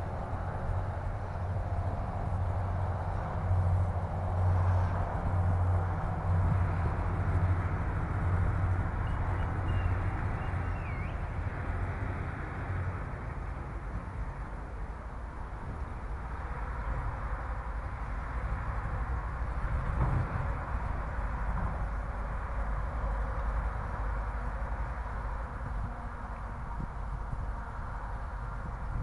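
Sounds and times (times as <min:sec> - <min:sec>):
faint high chirp: 0:09.0 - 0:11.2.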